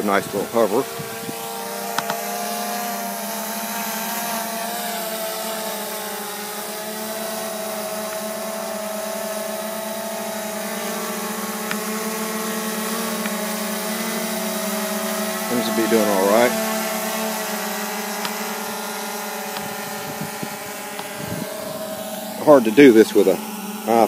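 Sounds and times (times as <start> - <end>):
drone propellers humming: 0.0 - 24.0.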